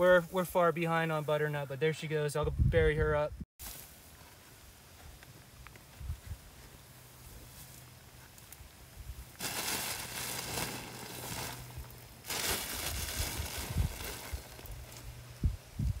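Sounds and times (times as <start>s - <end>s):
soil crunching and scraping: 6.5s - 15.2s.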